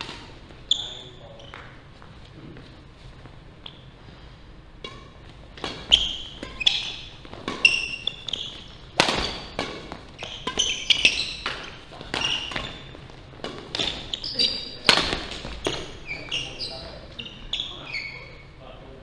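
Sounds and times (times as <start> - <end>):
sneakers squeaking on wooden floor: 0.0 - 4.0, 4.8 - 18.6
rackets hitting shuttlecock: 4.8 - 16.6.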